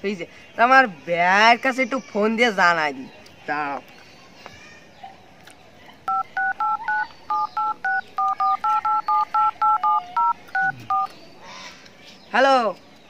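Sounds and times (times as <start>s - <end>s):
phone keypad beeps: 6.1s - 11.1s.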